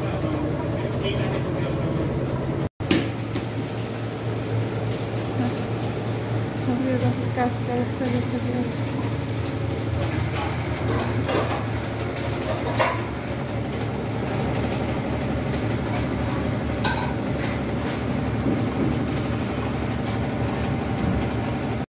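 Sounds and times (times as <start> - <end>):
washing machine humming: 0.0 - 21.9.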